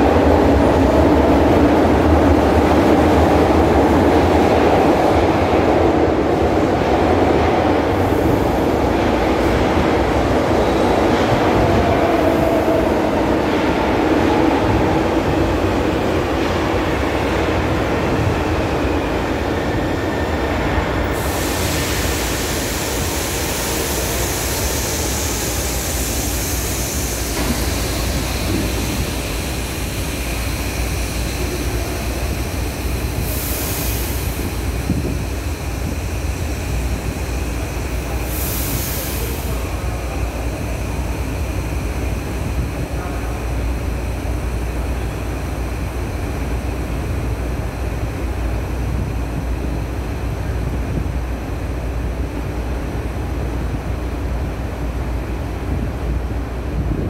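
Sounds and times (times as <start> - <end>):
air hissing: 21.1 - 40.5.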